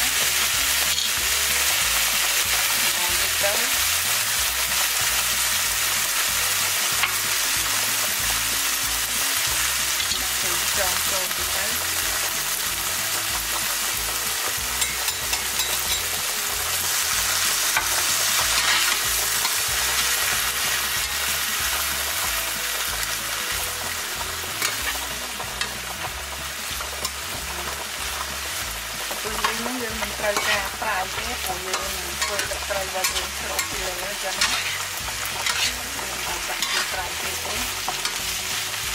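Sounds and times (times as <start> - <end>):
shrimp sizzling in a frying pan: 0.0 - 38.9
spatula scraping a pan: 14.5 - 21.8, 29.0 - 38.9.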